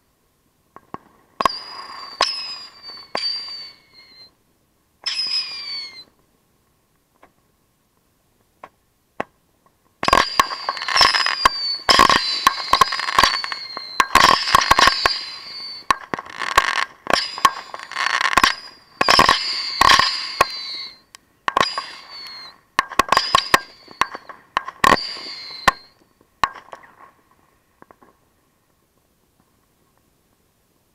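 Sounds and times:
firework bangs: 1.4 - 4.3, 10.0 - 27.1
firework whistles: 1.4 - 4.4, 5.0 - 6.2, 10.0 - 27.0.

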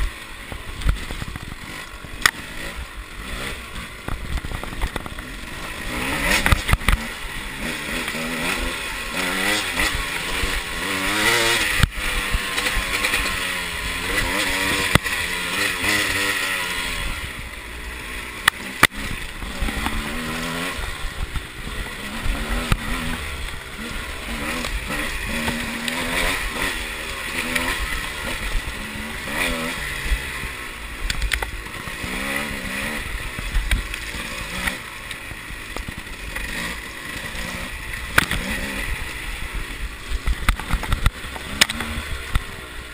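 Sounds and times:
motorcycle engine revving: 0.0 - 42.9
bike knocking on bumps: 4.0 - 5.3.

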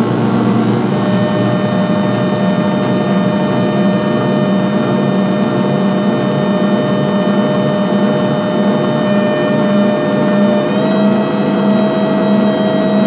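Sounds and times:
electronic drone: 0.0 - 13.0
loud low hum: 0.0 - 13.0.

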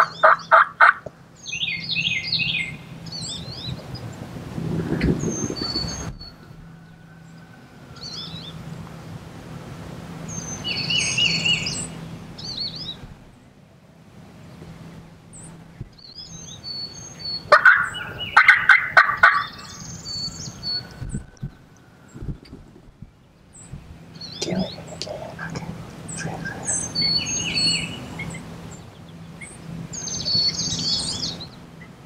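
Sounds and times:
turkey gobbling: 0.0 - 1.1, 17.4 - 19.8
songbirds chirping: 0.0 - 32.0.

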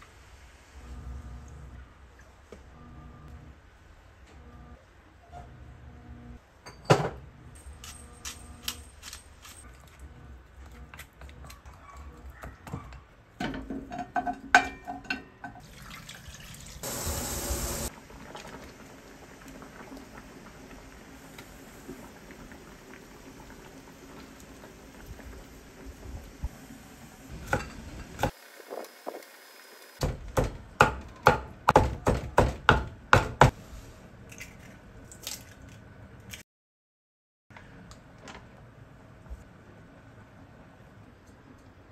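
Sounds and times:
boiling water bubbling: 15.6 - 27.3.

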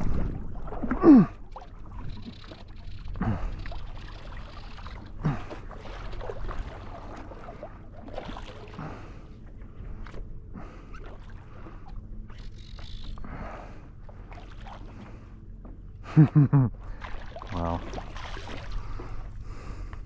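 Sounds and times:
small splashes: 0.0 - 10.2, 14.1 - 15.3, 16.8 - 19.3
water sloshing and lapping: 0.0 - 20.0.

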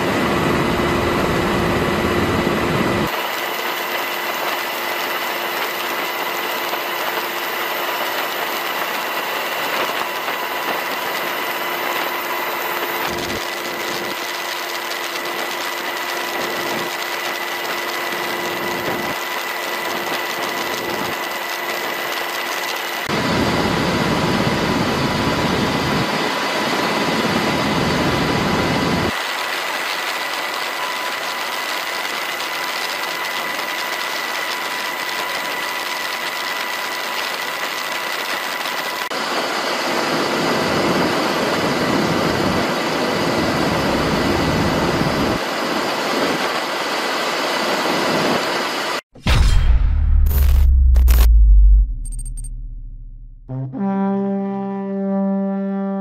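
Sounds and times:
helicopter engine and rotor: 0.0 - 49.0.

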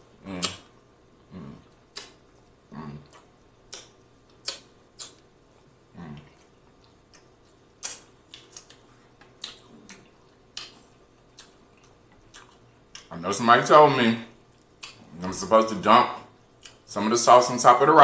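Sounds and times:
wet lip smacks while chewing: 0.4 - 0.7, 1.7 - 5.3, 6.2 - 13.1.

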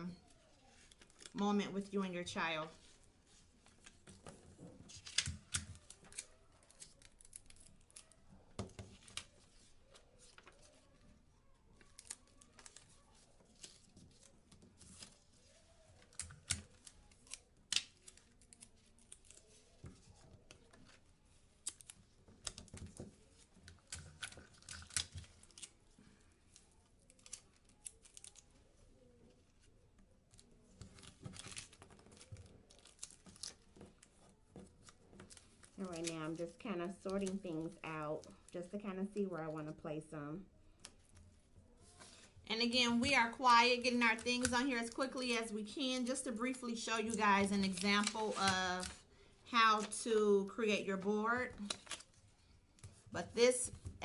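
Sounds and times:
paper rustling and tapping: 3.3 - 25.8, 30.3 - 38.4, 41.9 - 45.4, 46.4 - 50.1.

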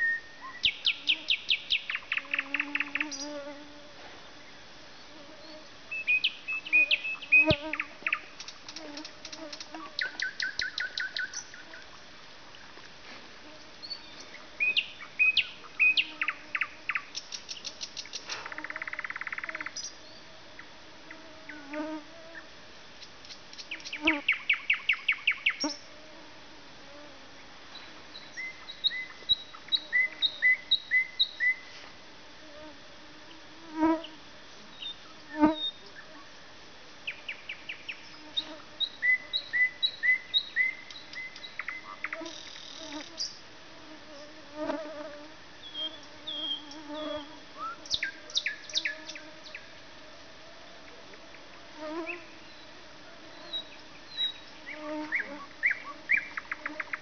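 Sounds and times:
nightingale singing: 0.0 - 3.4, 5.4 - 8.6, 9.8 - 11.9, 13.8 - 20.2, 28.1 - 31.6, 37.1 - 43.4, 45.6 - 49.6.

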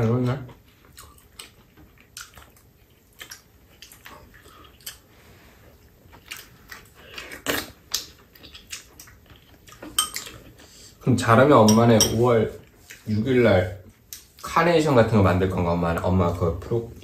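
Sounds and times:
chewing: 0.3 - 10.8.

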